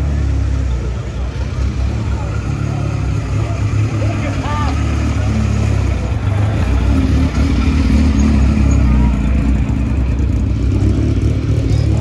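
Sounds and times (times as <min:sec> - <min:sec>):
car engine running at low revs: 0:00.0 - 0:12.0.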